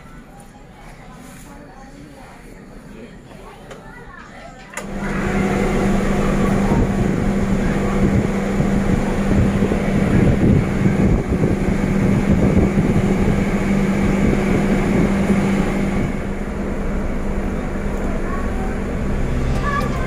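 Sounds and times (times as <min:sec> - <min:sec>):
low ship engine hum: 0:04.8 - 0:20.0
rushing noise: 0:05.0 - 0:20.0
wind buffeting microphone: 0:05.2 - 0:19.3.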